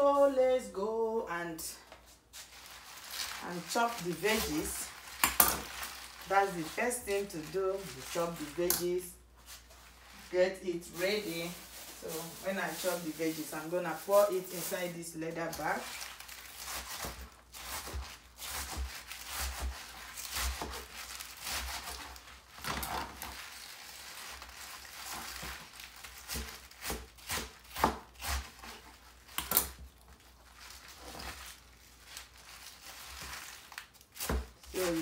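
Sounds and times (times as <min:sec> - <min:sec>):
leaves rustling: 0:02.1 - 0:29.3, 0:30.2 - 0:35.0
knife chopping on plastic board: 0:26.2 - 0:28.8.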